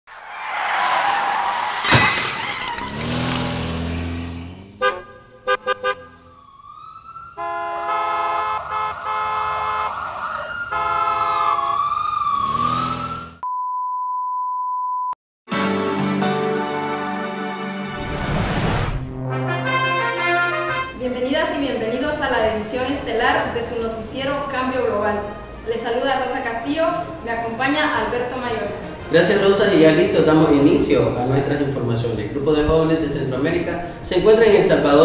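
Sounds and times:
whoosh with sharp hit: 0:00.1 - 0:01.9, 0:18.0 - 0:19.1
brass news theme music: 0:15.5 - 0:21.2.

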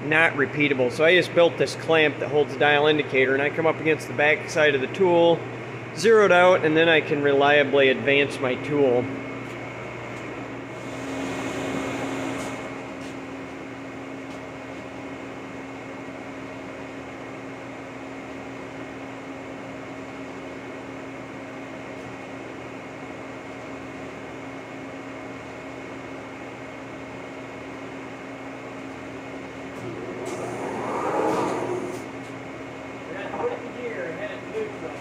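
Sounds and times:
line boring machine humming: 0:10.7 - 0:13.0, 0:29.2 - 0:35.0.

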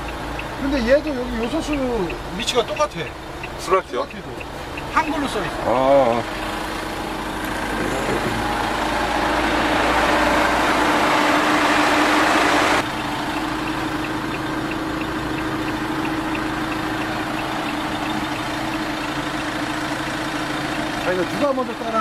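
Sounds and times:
faint rapid ticking: 0:00.0 - 0:06.5, 0:12.8 - 0:22.0
diesel engine idling: 0:00.0 - 0:22.0
loud rushing noise: 0:07.6 - 0:12.8.

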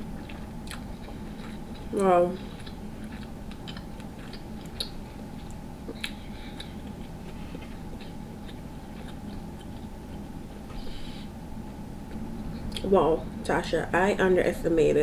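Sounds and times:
close chewing of soft food: 0:00.0 - 0:12.9.

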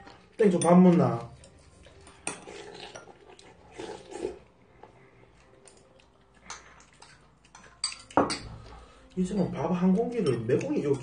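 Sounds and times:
person chewing and slurping: 0:01.4 - 0:09.1
cutlery clicking against bowl: 0:06.5 - 0:08.5, 0:09.4 - 0:11.0.

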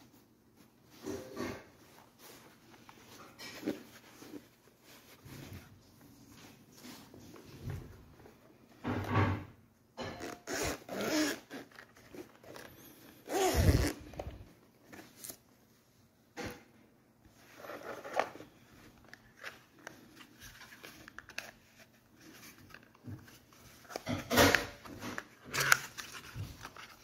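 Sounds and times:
rustling and handling: 0:00.0 - 0:27.0
zipper pulled open: 0:10.2 - 0:14.4.

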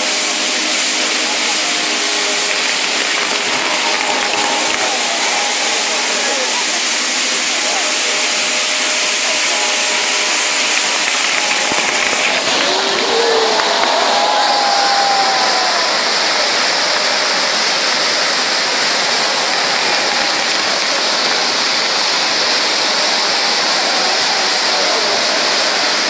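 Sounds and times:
firework fountains hissing: 0:00.0 - 0:26.0
sparks crackling: 0:00.7 - 0:14.4, 0:18.4 - 0:22.6
descending firework whistle: 0:08.3 - 0:17.5.

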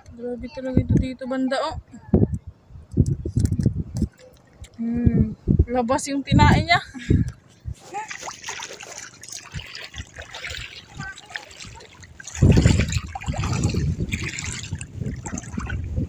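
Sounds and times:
seawater trickling and splashing: 0:04.0 - 0:04.8, 0:07.3 - 0:16.0.

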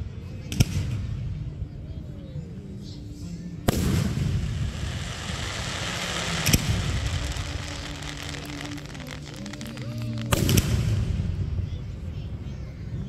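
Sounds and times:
firework bangs: 0:03.7 - 0:11.5
firework crackling: 0:03.7 - 0:11.6.

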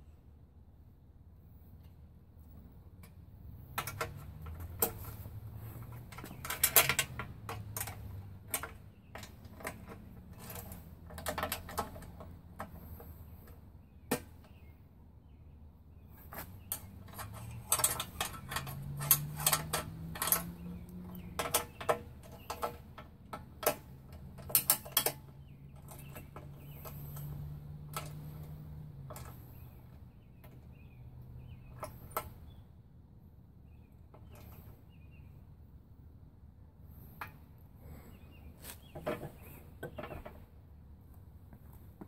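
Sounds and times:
wrench clicking on bolts: 0:16.4 - 0:29.5.

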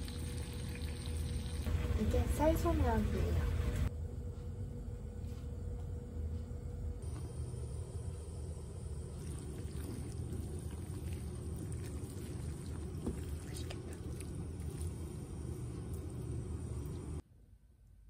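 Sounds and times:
chopsticks stirring sticky noodles: 0:09.1 - 0:17.1.

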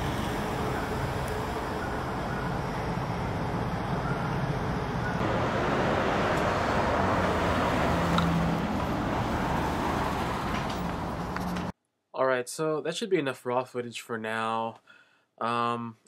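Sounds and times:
low engine hum: 0:00.0 - 0:11.7
traffic noise: 0:00.0 - 0:11.8.

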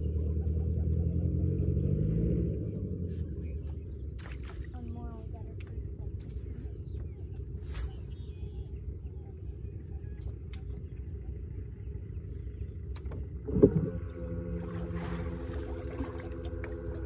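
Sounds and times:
electric trolling motor humming: 0:08.5 - 0:17.0.

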